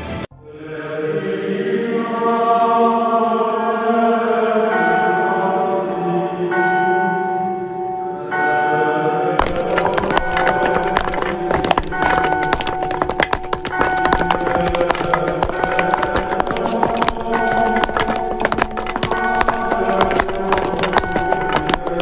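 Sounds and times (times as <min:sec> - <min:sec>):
choir-like chords with bells: 0:00.4 - 0:22.0
rapid percussive clatter: 0:09.4 - 0:22.0.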